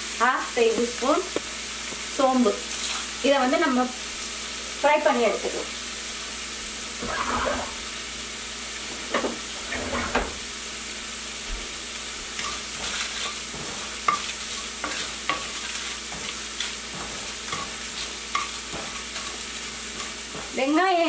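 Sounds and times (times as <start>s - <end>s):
frying sizzle: 0.0s - 21.0s
wooden spoon scraping pan: 7.0s - 7.8s, 12.4s - 20.6s.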